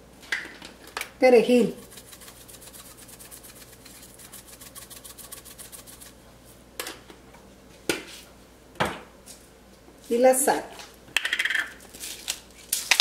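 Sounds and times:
spice jar rattling: 1.8s - 6.1s.

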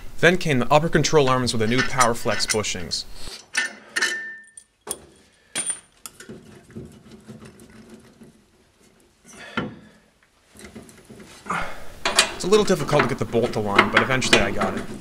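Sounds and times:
metal parts clinking: 1.7s - 6.4s.

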